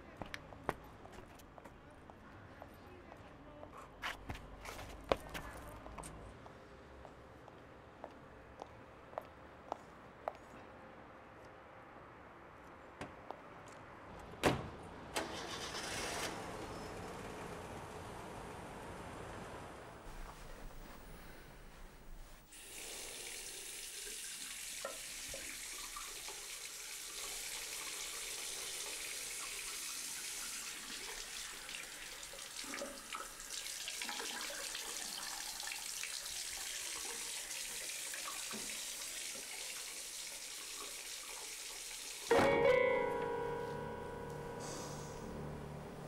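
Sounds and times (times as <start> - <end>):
tap water running into sink: 22.5 - 42.3.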